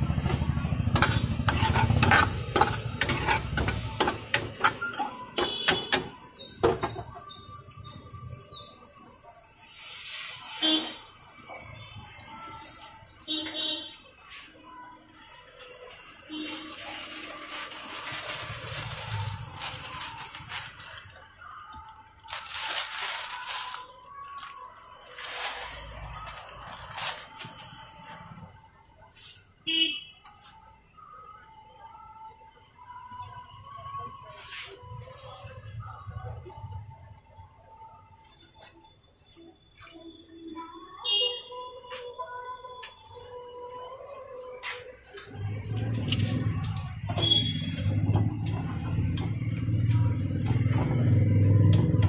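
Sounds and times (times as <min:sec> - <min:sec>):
plastic packet tearing and crinkling: 0:16.5 - 0:21.2, 0:22.2 - 0:27.7
dry noodles crunching: 0:16.6 - 0:27.8.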